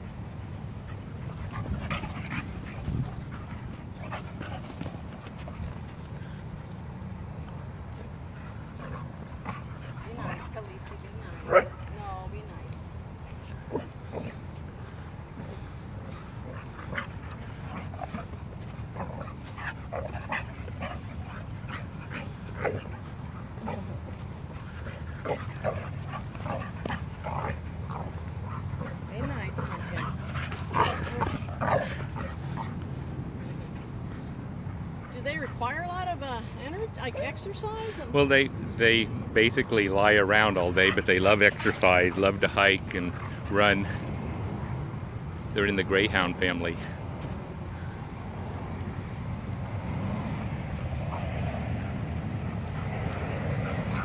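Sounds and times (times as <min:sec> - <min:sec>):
dog panting: 0:00.6 - 0:06.7, 0:07.4 - 0:12.0, 0:13.2 - 0:38.1, 0:39.9 - 0:44.2, 0:52.7 - 0:54.0.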